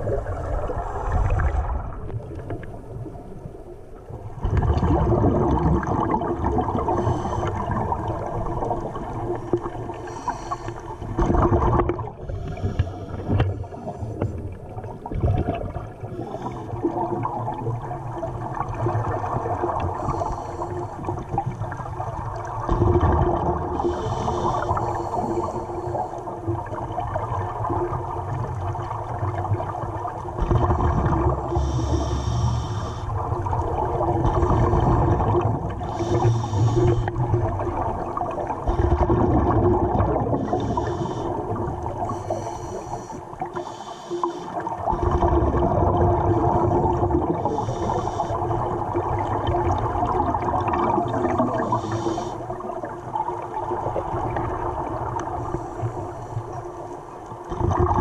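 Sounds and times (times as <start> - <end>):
quiet underwater rushing: 0.0 - 58.0
underwater air bubbling: 0.0 - 58.0.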